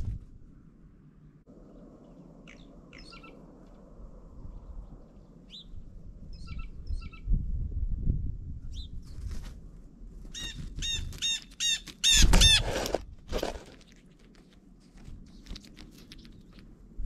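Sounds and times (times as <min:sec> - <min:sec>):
songbird chirps: 0:01.5 - 0:07.3, 0:13.9 - 0:16.8.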